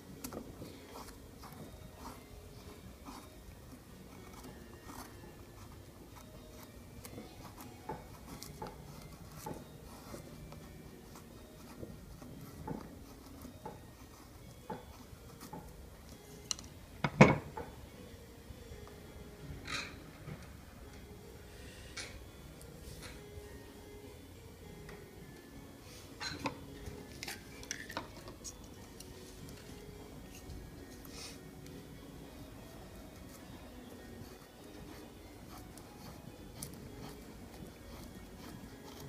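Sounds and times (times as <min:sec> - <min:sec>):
knife scraping wooden stick: 0:00.2 - 0:15.8, 0:33.0 - 0:39.0.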